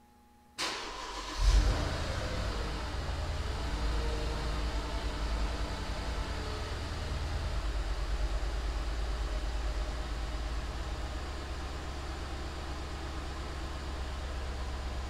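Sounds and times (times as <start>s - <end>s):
car engine revving and idling: 1.0s - 15.0s.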